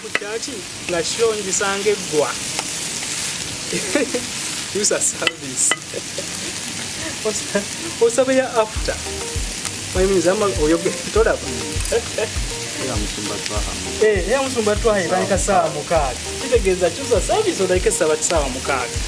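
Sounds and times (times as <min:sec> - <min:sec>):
vegetables sizzling in oil: 0:00.0 - 0:19.0
background music with beat: 0:07.8 - 0:19.0.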